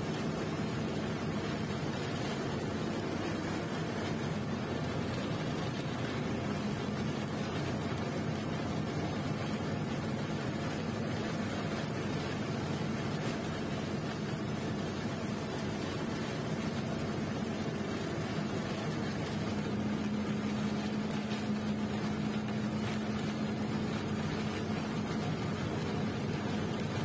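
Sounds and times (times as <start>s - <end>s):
bus engine drone: 0.0s - 27.0s
road noise: 0.0s - 27.0s.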